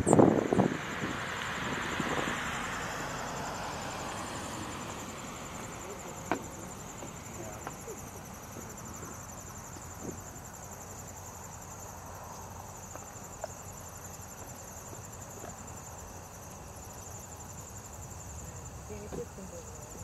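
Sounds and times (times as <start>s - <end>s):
crickets trilling: 0.0s - 20.0s.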